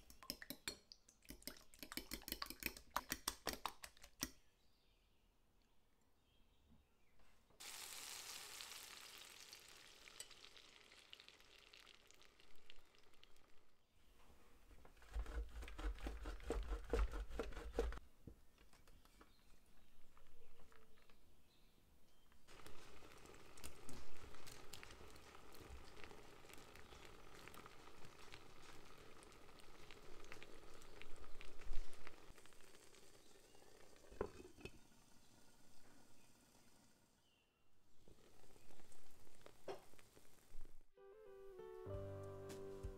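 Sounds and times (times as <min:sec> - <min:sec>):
egg sizzling in frying pan: 0:07.6 - 0:13.8, 0:22.4 - 0:37.2, 0:38.0 - 0:40.7.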